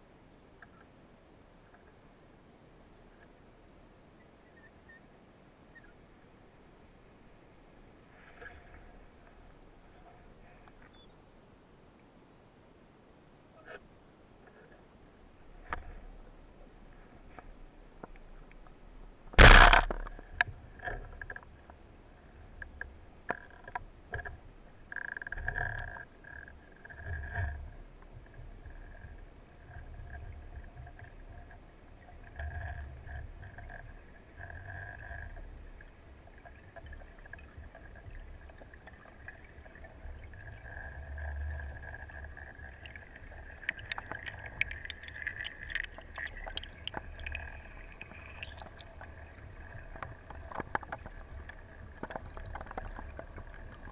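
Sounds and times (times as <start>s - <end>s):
low rumbles of water: 0.0s - 53.9s
speargun crack underwater: 19.4s - 20.2s, 43.5s - 49.1s
bubbling clicks: 19.4s - 21.5s, 32.2s - 53.9s.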